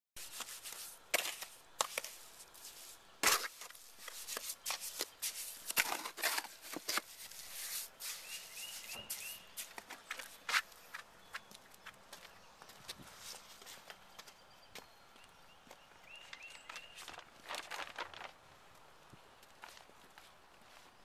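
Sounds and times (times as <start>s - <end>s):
trowel mixing wet mortar: 0.2s - 9.8s.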